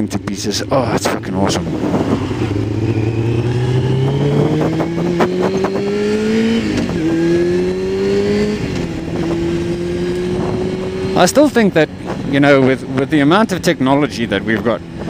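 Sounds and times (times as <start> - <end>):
motorcycle engine accelerating: 0.0 - 15.0
wind noise: 0.8 - 15.0.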